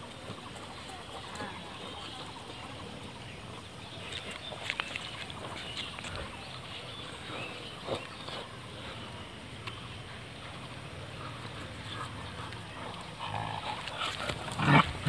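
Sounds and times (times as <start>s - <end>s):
steady background noise: 0.0s - 15.0s
dogs play-fighting: 9.9s - 15.0s.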